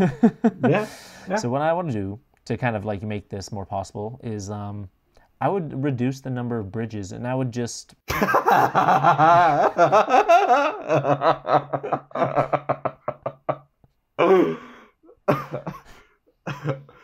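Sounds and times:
man laughing heartily: 0.0 - 1.0, 8.1 - 17.0.

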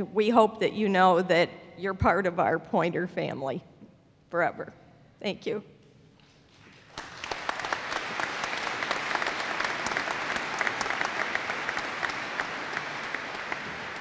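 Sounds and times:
audience applause: 6.6 - 14.0.

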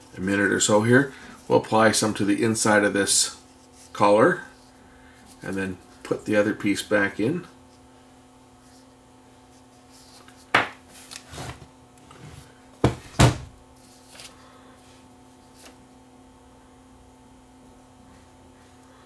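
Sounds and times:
faint steady hum: 0.0 - 19.0
tools knocking on workbench: 12.8 - 13.5.

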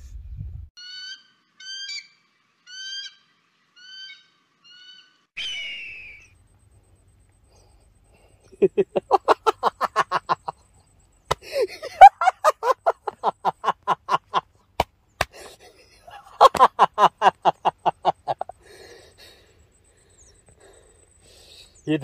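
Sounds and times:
man laughing mockingly: 8.5 - 10.7, 11.3 - 14.5, 15.3 - 18.6.

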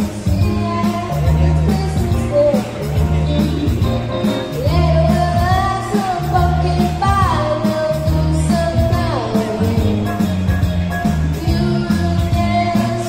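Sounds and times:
amplified backing music with beat: 0.0 - 13.0
child singing into microphone: 11.4 - 13.0.

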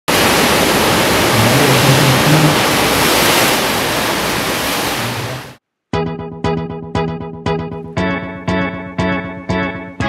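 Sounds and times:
loud steady rushing noise: 0.1 - 5.6.

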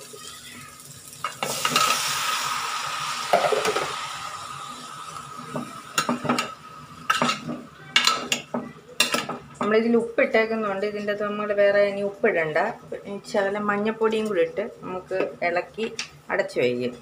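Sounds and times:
chicken sizzling in hot oil: 0.0 - 8.4.

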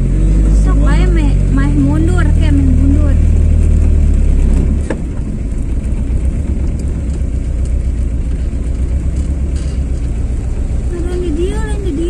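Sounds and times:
car engine and tyre rumble: 0.0 - 12.0.

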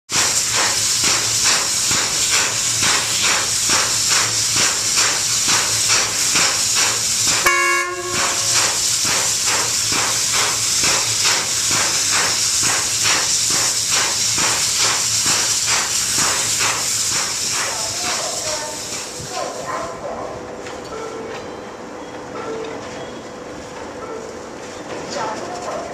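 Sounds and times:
steam hissing pulsing: 0.1 - 19.8
short pitched tone: 7.5 - 8.3.

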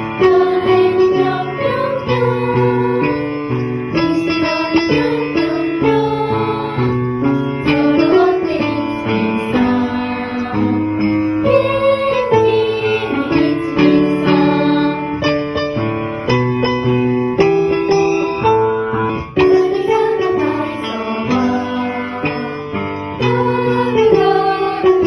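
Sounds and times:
instrumental backing music: 0.0 - 25.0
person singing: 7.6 - 15.0.

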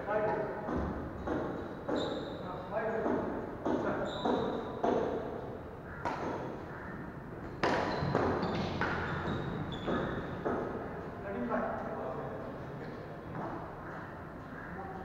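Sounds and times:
rackets hitting shuttlecock: 0.7 - 2.2, 6.0 - 6.6, 7.4 - 10.8.

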